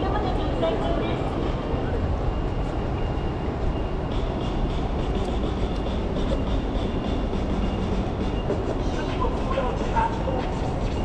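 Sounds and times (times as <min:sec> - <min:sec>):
city street rumble and hiss: 0:00.0 - 0:11.0.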